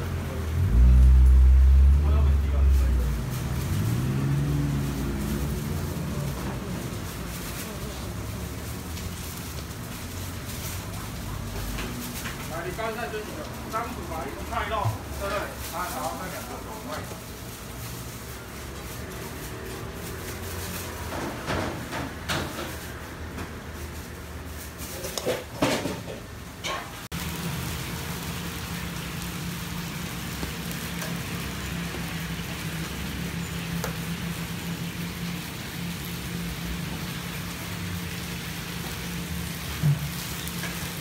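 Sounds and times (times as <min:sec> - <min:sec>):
food sizzling in oiled pan: 0:03.1 - 0:19.6, 0:27.0 - 0:41.0.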